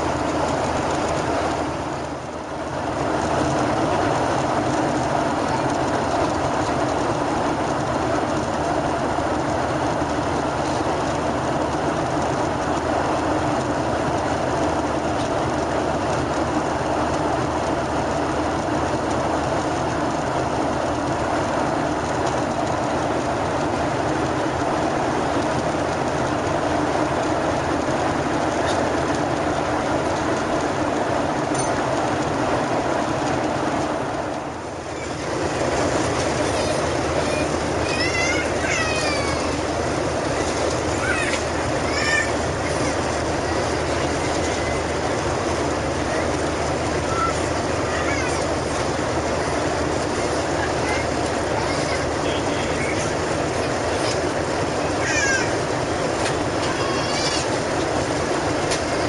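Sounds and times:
airplane cabin roar: 0.0s - 59.0s
young child crying: 36.5s - 39.6s, 40.9s - 43.0s, 47.0s - 48.5s, 50.9s - 53.1s, 54.8s - 55.7s, 56.6s - 57.6s.

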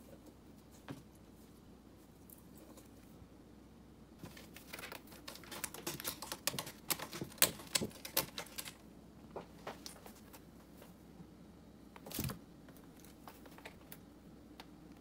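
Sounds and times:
cat scratching cardboard: 4.2s - 11.0s.

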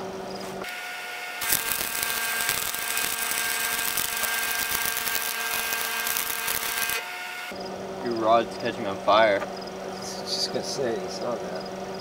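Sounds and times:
welding arc crackling: 0.6s - 7.5s.

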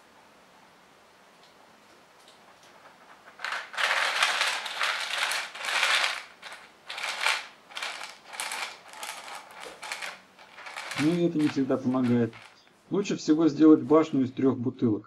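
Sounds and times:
mouse scrambling over beans: 2.2s - 12.8s
coffee beans rattling in plastic bottle: 2.6s - 12.7s.

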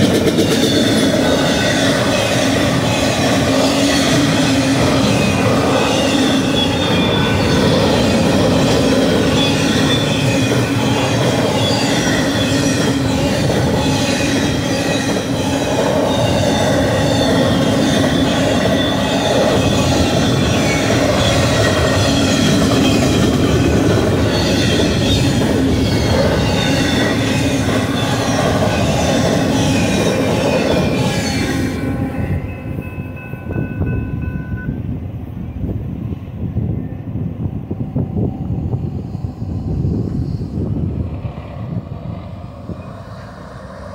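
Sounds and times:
train wheels rumbling on rail: 0.0s - 43.9s
high-pitched ringing tones: 4.1s - 23.1s, 24.3s - 34.9s.

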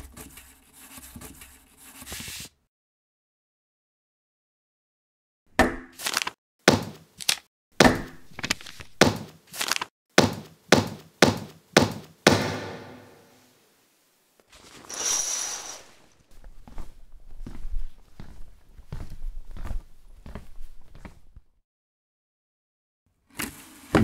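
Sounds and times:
scraping hiss with high tone: 14.8s - 16.2s.

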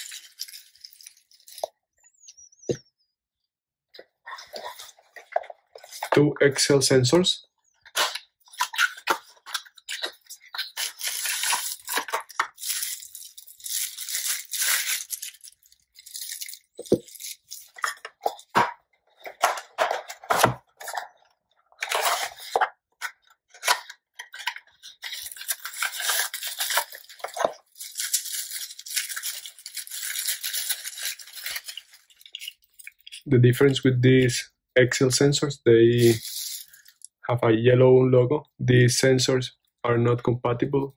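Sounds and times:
bubble wrap crinkling: 0.0s - 1.7s, 8.0s - 18.6s, 23.6s - 33.2s, 36.0s - 37.1s
cardboard packaging rustling: 0.0s - 1.7s, 7.9s - 33.2s.

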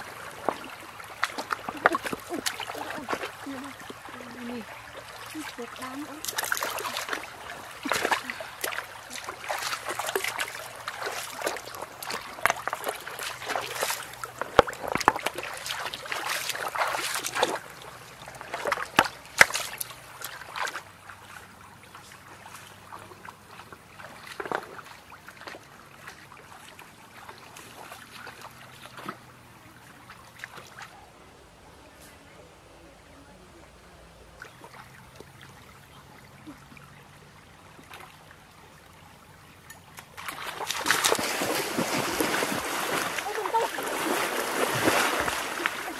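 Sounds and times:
hands slapping water: 0.0s - 4.1s, 5.2s - 21.4s, 39.9s - 45.9s
feet splashing in stream: 0.0s - 31.0s, 34.4s - 45.9s
stream trickling: 0.0s - 31.8s, 32.5s - 45.9s.

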